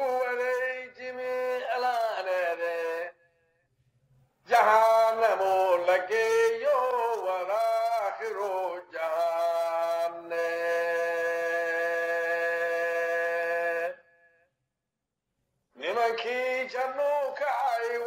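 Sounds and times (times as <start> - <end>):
man chanting: 0.0 - 3.3, 4.4 - 14.1, 15.8 - 18.0.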